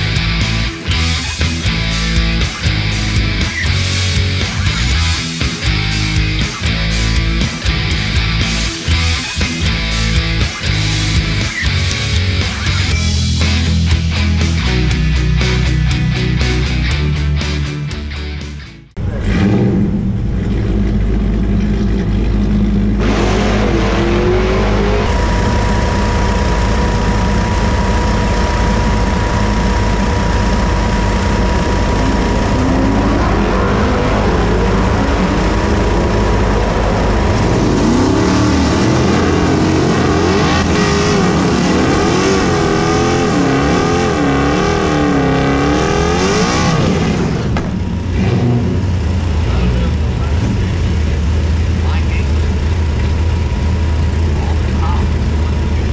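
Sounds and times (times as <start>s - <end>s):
loud truck engines running: 0.0s - 55.9s
engine revving during burnout: 19.0s - 51.9s.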